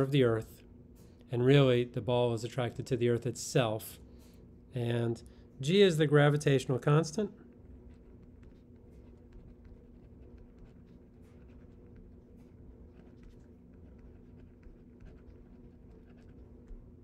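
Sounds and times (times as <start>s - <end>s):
steady low hum: 0.0s - 17.0s
pen scratching on paper: 7.6s - 17.0s.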